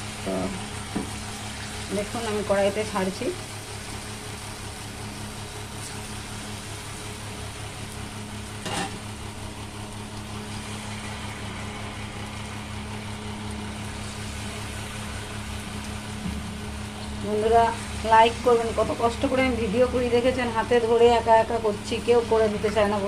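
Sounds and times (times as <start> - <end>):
oil sizzling and bubbling: 0.0 - 23.0
low hum: 8.0 - 23.0.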